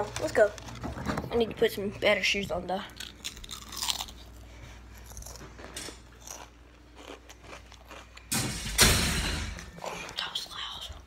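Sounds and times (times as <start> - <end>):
crunchy snack chewing: 2.9 - 5.5, 6.2 - 8.3.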